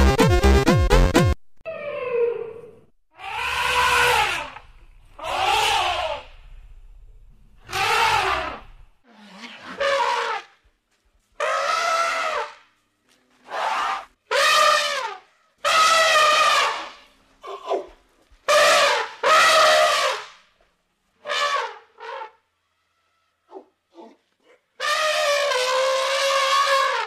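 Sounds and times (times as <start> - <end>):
elephant trumpeting: 2.0 - 6.5, 7.6 - 10.6, 11.4 - 12.6, 13.5 - 17.1, 18.5 - 20.3, 21.2 - 23.6, 24.8 - 27.0.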